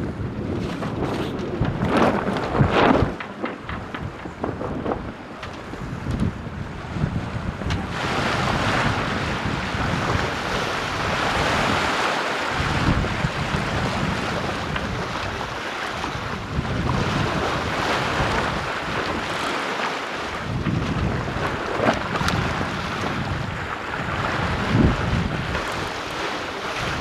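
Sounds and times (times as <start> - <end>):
water splashing along hull: 0.0 - 27.0
wind buffeting microphone: 0.0 - 27.0.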